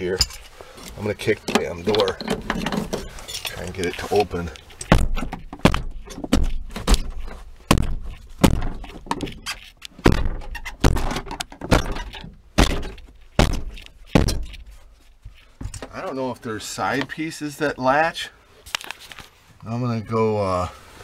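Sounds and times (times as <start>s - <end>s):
heavy thuds of kicks on liftgate: 4.9s - 9.0s.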